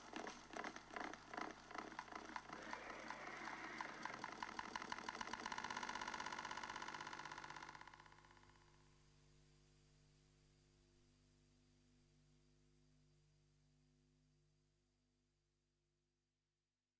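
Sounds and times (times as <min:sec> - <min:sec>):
faint fast pulsing: 0:00.9 - 0:08.2.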